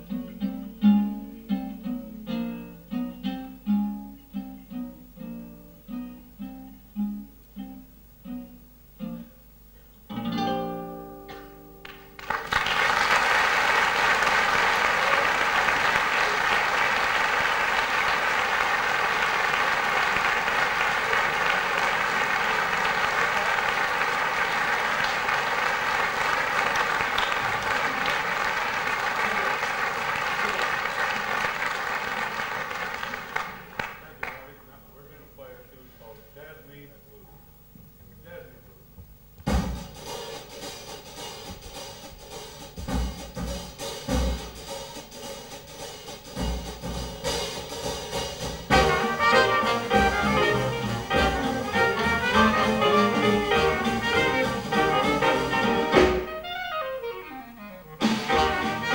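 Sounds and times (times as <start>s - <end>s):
jazz band playing: 10.2s - 33.4s, 39.4s - 58.9s
audience applauding: 11.3s - 34.6s, 48.7s - 56.3s
bass drum thumps: 39.0s - 40.0s, 41.4s - 44.6s
trumpet and trombone: 48.7s - 58.9s.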